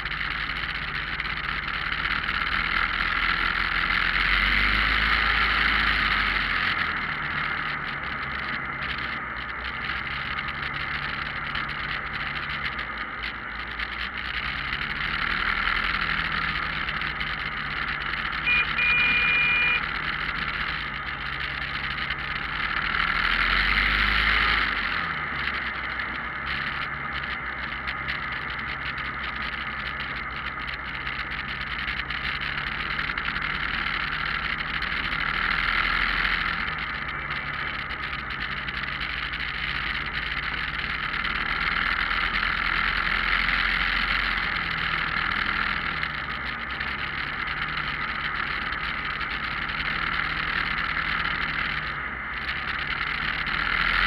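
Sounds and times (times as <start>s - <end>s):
motorcycle engine running: 0.0s - 54.0s
short high beep: 18.4s - 19.9s.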